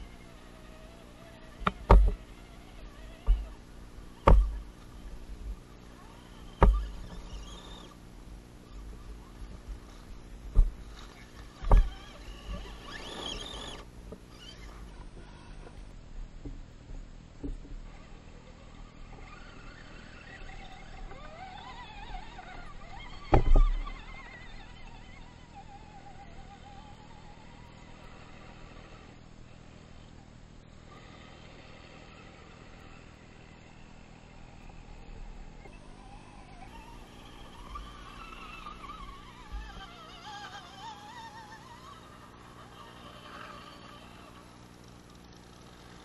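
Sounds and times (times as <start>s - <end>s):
electric motors whining: 0.0s - 16.0s, 17.4s - 46.0s
sharp knocks with low thud: 4.2s - 4.6s, 6.6s - 6.8s.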